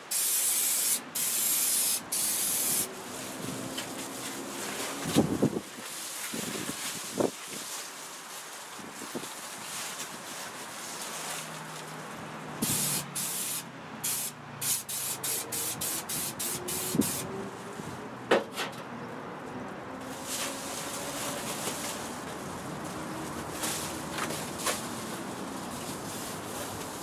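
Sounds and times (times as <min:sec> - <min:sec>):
aerosol spray hissing: 0:00.1 - 0:02.9, 0:12.6 - 0:17.3.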